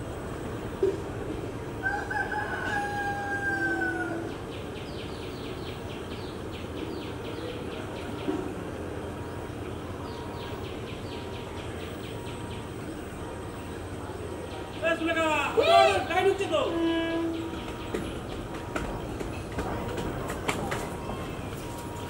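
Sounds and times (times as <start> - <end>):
rooster crowing: 1.8 - 4.3
knock: 17.6 - 20.9.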